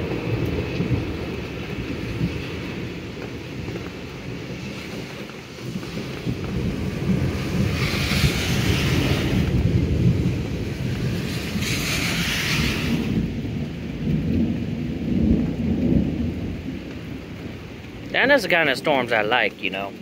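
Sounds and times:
rain falling: 0.0 - 20.0
thunder rumbling: 0.0 - 20.0
high hiss: 7.4 - 9.6, 11.0 - 13.2.

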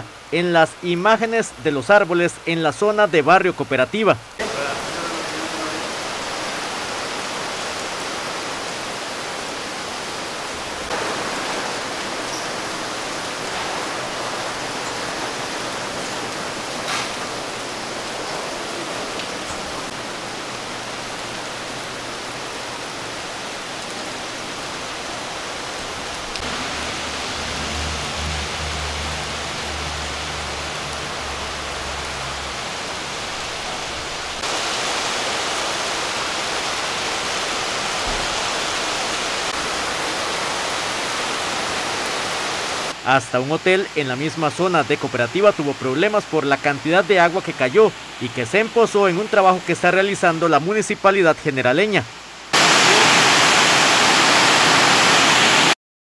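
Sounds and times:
heavy rain falling: 0.0 - 55.8.

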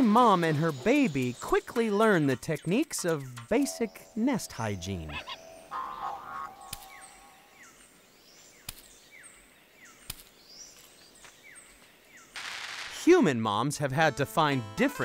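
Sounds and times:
higher calls: 3.6 - 7.6
sharp clicks: 6.7 - 7.0, 8.6 - 8.9, 10.0 - 10.3.

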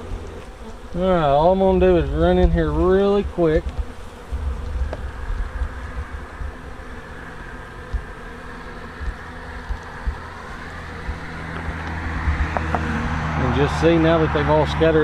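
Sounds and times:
bees buzzing: 0.0 - 15.0
low rumble: 3.6 - 8.2, 8.8 - 14.9.

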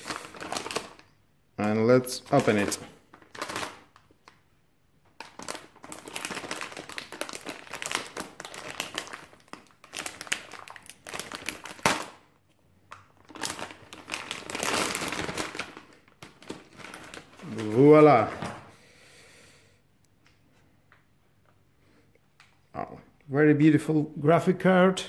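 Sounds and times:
plastic bag crinkling: 0.0 - 1.2, 2.3 - 4.4, 5.2 - 12.3, 12.9 - 18.4.

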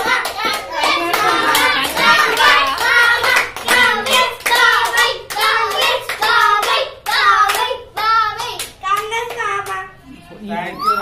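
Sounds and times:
group chanting in unison: 0.0 - 8.3
rhythmic hand clapping: 0.0 - 10.0.

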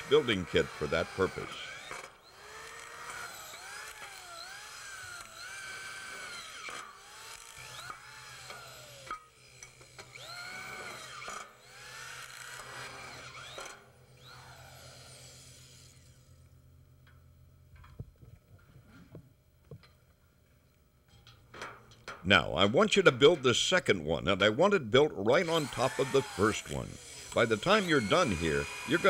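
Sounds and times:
electric screw gun whining: 0.0 - 16.5, 25.3 - 29.0.

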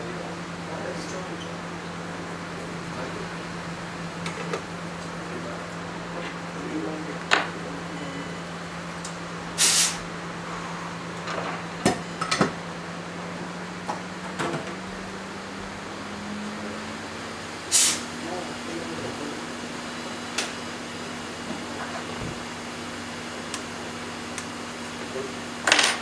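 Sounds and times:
low machine hum: 0.0 - 26.0
short burst of hiss: 9.6 - 10.0, 17.7 - 18.0.

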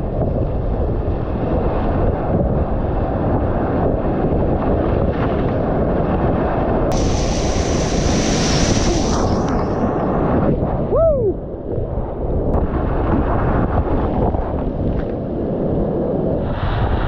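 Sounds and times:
water spray splashing: 6.9 - 9.9
whitewater rapids rushing: 6.9 - 9.9.

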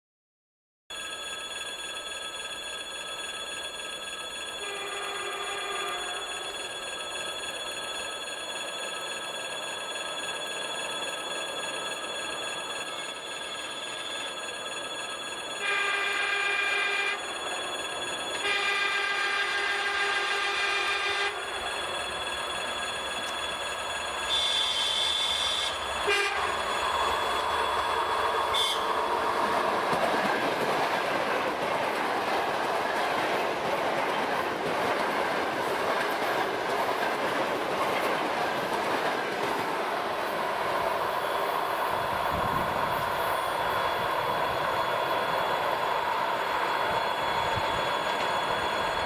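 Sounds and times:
electric train running: 0.9 - 49.0
train horn blasts: 4.6 - 6.5, 15.6 - 17.2, 18.4 - 21.4, 24.3 - 26.6, 28.5 - 29.1.

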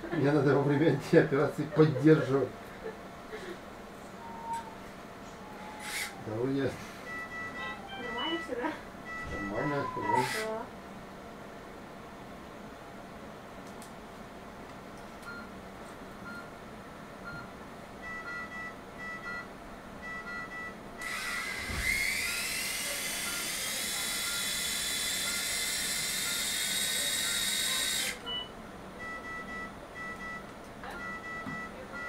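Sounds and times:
power drill whining: 5.6 - 6.2, 10.0 - 10.5, 21.0 - 28.2
short electronic beeps: 7.1 - 8.5, 9.1 - 10.2, 28.2 - 32.0.

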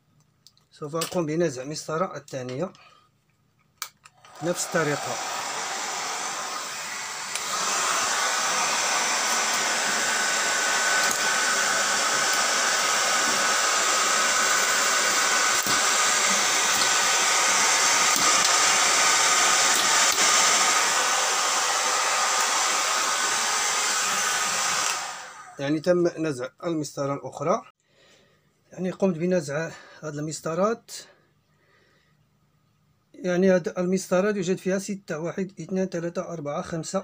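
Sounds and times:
hair dryer running: 4.2 - 25.6.

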